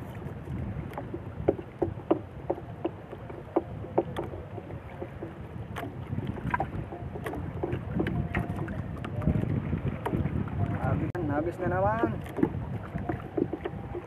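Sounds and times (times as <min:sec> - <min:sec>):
water against boat: 0:00.0 - 0:14.0
wind on microphone: 0:00.0 - 0:14.0
light clicks and knocks: 0:00.9 - 0:09.2.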